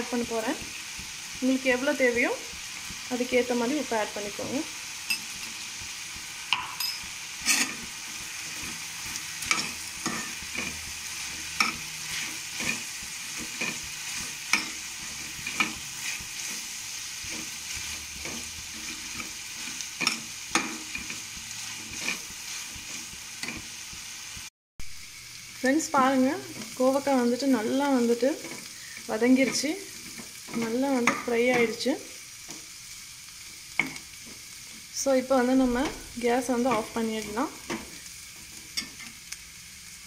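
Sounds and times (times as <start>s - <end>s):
vegetables sizzling in oil: 0.0s - 40.0s
metal spatula scraping a pan: 6.5s - 23.8s.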